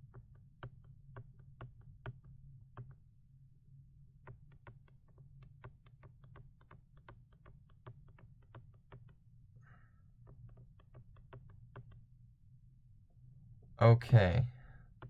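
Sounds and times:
stylus tapping on drawing tablet: 0:00.0 - 0:03.0, 0:04.2 - 0:09.2, 0:10.2 - 0:12.1
low steady hum: 0:11.6 - 0:15.0.

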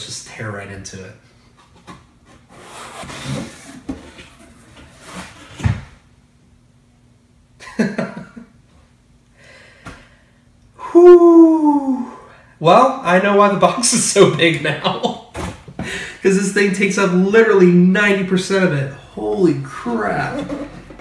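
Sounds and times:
short voice sound: 0:10.8 - 0:12.3.

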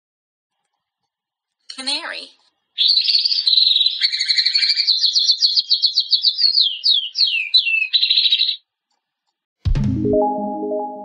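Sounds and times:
canary singing high trills: 0:02.8 - 0:08.7.

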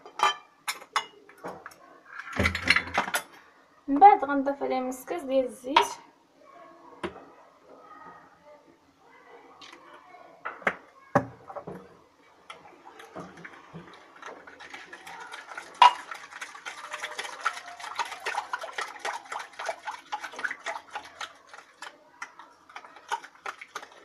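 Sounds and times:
whisk clicking against glass bowl: 0:14.9 - 0:24.0.

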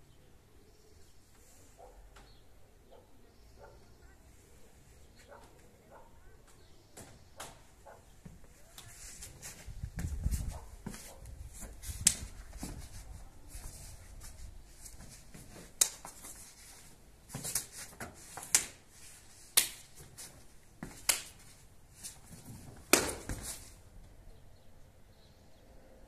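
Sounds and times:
faint rustling: 0:07.8 - 0:24.2
sharp snaps of strikes: 0:15.8 - 0:16.1, 0:18.4 - 0:18.8, 0:19.5 - 0:20.0, 0:21.0 - 0:21.4, 0:22.9 - 0:23.6.

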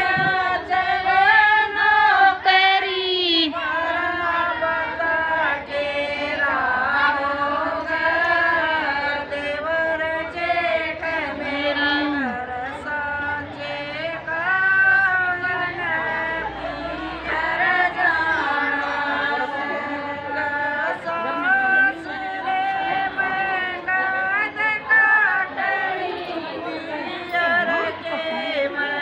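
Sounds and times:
women singing together: 0:00.0 - 0:29.0.

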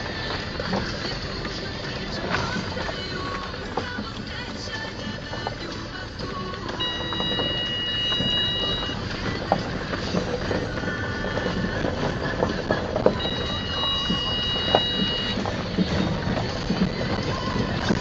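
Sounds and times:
car tyres rumbling on gravel: 0:00.0 - 0:18.0
high squeal: 0:06.8 - 0:09.1, 0:13.0 - 0:16.4.

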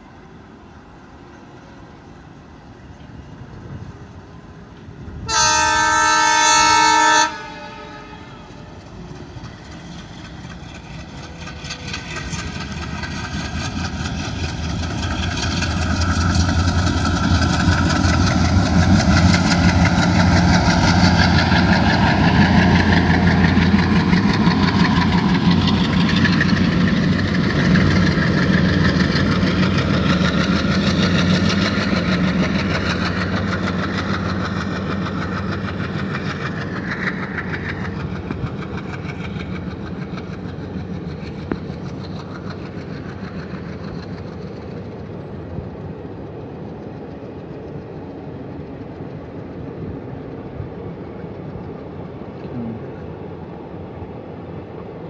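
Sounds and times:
diesel locomotives chugging: 0:00.0 - 0:55.0.

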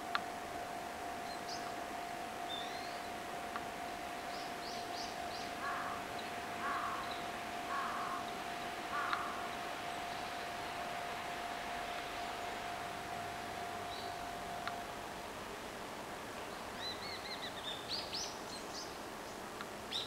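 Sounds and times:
faint steady hum: 0:00.0 - 0:20.0
crow cawing: 0:05.6 - 0:07.1, 0:07.7 - 0:08.3, 0:08.9 - 0:09.5.

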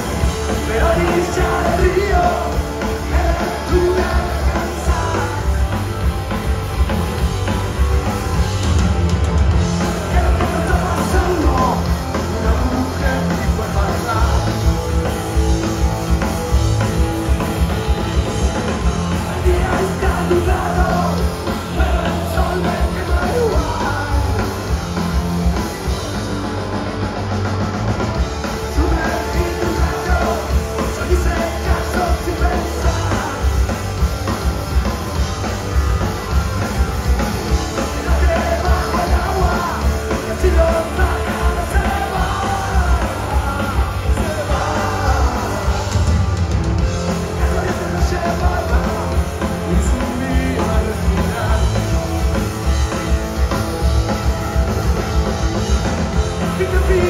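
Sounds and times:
man singing: 0:00.0 - 0:06.1, 0:09.7 - 0:15.0, 0:18.7 - 0:25.0, 0:28.5 - 0:34.1, 0:37.5 - 0:46.4, 0:47.0 - 0:52.5, 0:56.4 - 0:57.0
bass guitar: 0:00.0 - 0:57.0
drums: 0:00.0 - 0:57.0
electric guitars: 0:00.0 - 0:57.0.

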